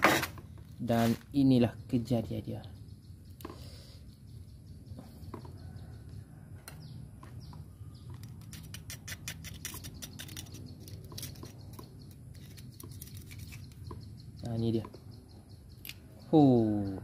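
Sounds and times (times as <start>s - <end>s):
metal spoon scraping oyster shell: 8.1s - 14.0s.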